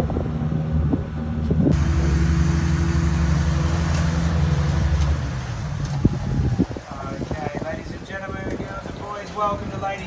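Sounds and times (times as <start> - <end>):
boat engine droning: 0.0 - 8.0
wind and water hiss: 1.6 - 10.0.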